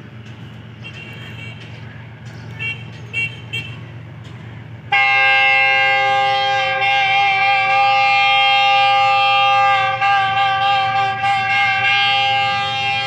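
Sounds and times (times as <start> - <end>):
locomotive air horn blast: 4.9 - 13.0.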